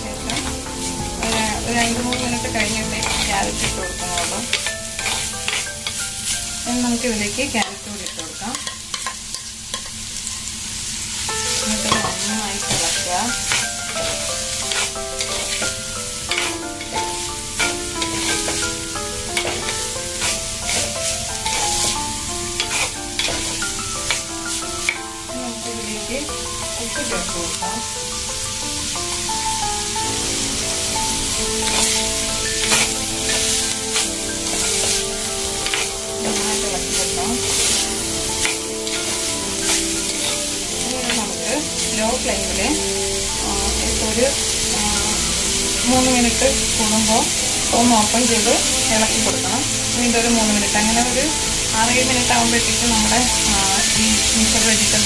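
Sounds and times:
vegetables sizzling in oil: 0.0s - 55.0s
spoon scraping pot: 0.3s - 6.0s, 22.6s - 24.2s.

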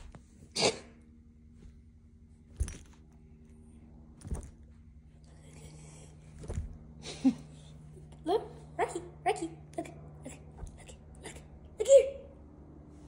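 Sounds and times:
puppy thumping on cushions: 0.0s - 0.4s, 1.5s - 3.2s, 4.2s - 4.8s, 6.3s - 7.0s, 10.5s - 11.0s
low room hum: 0.0s - 13.0s.

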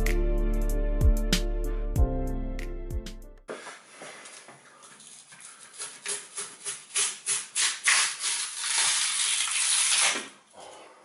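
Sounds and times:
wood tearing from foam: 5.0s - 10.5s.

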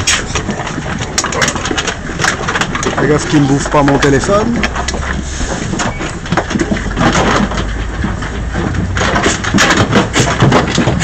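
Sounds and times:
pigs grunting and squealing: 0.0s - 5.6s.

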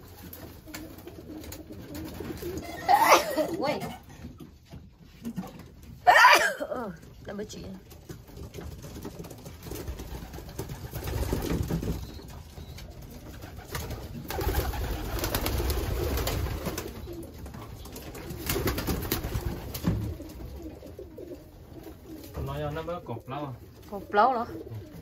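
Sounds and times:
pigeons cooing: 0.0s - 4.1s, 9.8s - 22.5s, 23.6s - 25.0s
wing flaps: 8.8s - 12.4s, 13.0s - 17.2s, 17.8s - 21.3s.

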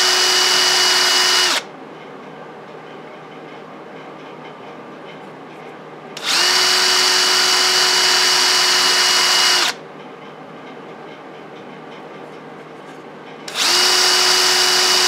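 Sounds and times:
drill press spinning: 0.0s - 1.6s, 6.2s - 9.8s, 13.5s - 15.0s.

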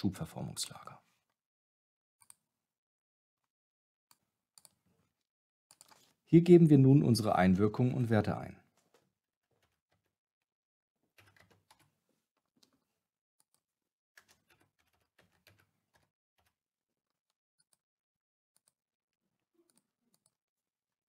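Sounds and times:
faint keyboard typing: 5.7s - 6.2s, 11.1s - 12.0s, 14.2s - 16.6s.

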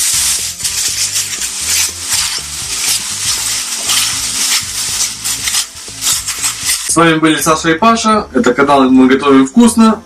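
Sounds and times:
plastic bag rustling: 0.0s - 7.0s.

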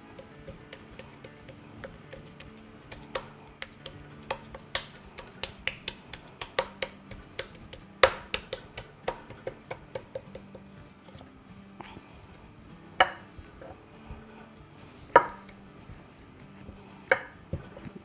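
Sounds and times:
hands patting dough on countertop: 0.0s - 10.8s, 13.0s - 18.0s.

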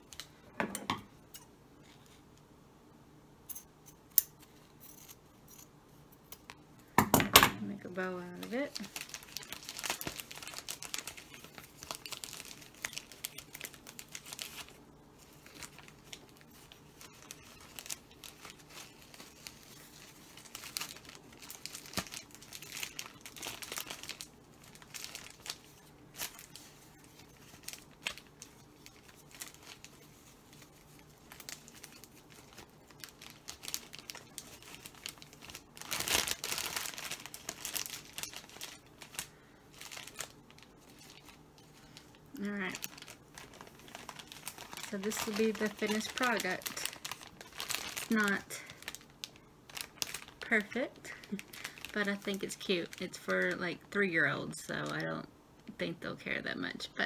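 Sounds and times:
plastic bag crinkling: 7.7s - 55.2s.

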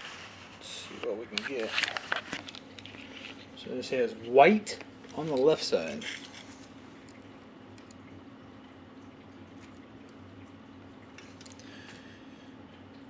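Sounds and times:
soft clicks and rustles: 0.0s - 3.7s, 4.7s - 8.2s, 9.5s - 12.0s
steady low hum: 0.0s - 13.0s.

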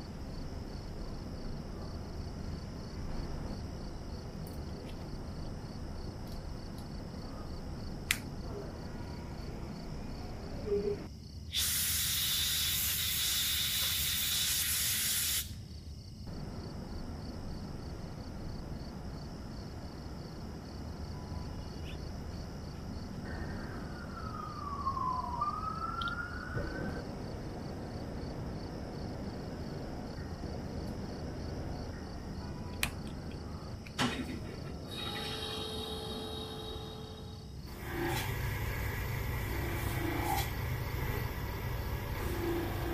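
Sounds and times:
faint squeaky tone: 8.4s - 11.1s, 21.1s - 22.1s, 34.9s - 37.5s
loud hiss: 11.5s - 15.6s, 37.7s - 42.9s.

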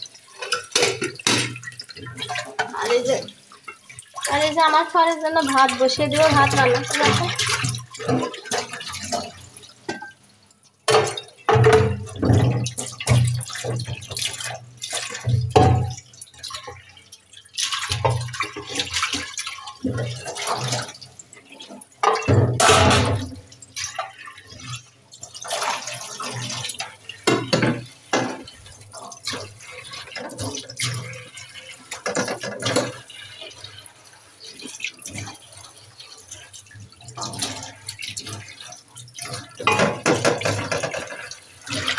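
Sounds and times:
scrubbing pot by hand: 0.0s - 10.2s, 10.9s - 41.9s
tap water splashing in a pot: 0.0s - 41.9s
water splashing into empty sink: 0.0s - 41.9s
pot knocking against metal sink: 0.4s - 3.0s, 6.0s - 10.2s, 10.9s - 14.5s, 15.1s - 16.1s, 22.0s - 23.4s, 27.2s - 28.5s, 31.9s - 33.1s, 39.4s - 41.3s.

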